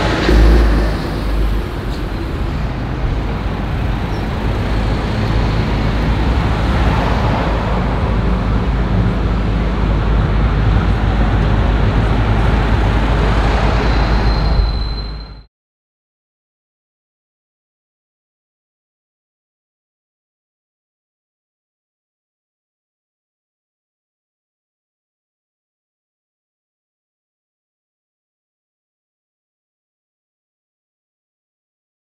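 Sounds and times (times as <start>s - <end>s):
low engine hum: 0.0s - 14.3s
road traffic passing: 0.0s - 15.4s.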